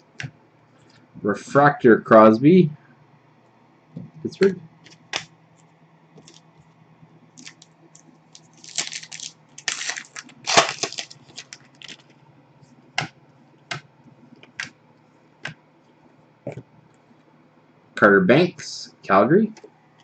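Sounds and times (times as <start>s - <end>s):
foil wrapper crinkling: 7.4s - 12.1s.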